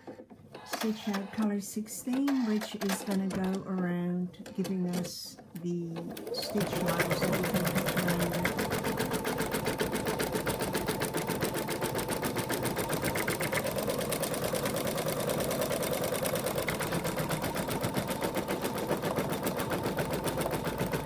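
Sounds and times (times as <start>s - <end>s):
embroidery machine stitching: 5.9s - 21.0s.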